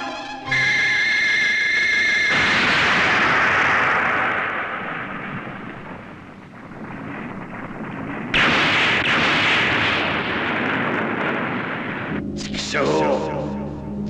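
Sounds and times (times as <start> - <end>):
explosions: 2.2 - 12.7.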